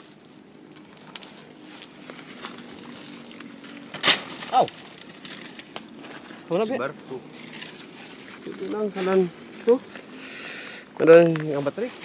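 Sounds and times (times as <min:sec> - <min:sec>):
movement through dry vegetation: 0:00.0 - 0:12.0
loud sharp crackle: 0:03.9 - 0:05.9.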